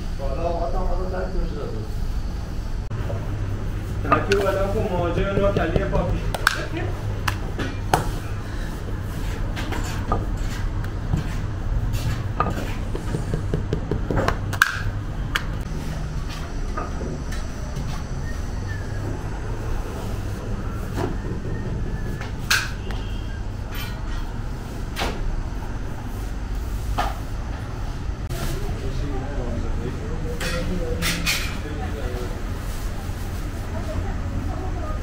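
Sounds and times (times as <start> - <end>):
hand tools knocking and clicking: 12.4 - 15.5
low hum: 14.9 - 24.4.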